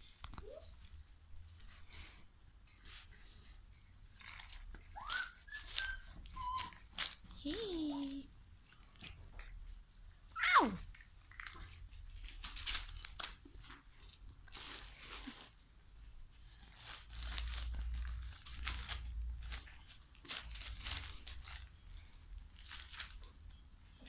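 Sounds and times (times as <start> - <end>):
newspaper crinkling and crunching: 12.1 - 13.8, 14.4 - 15.6, 16.5 - 21.7, 22.6 - 23.3.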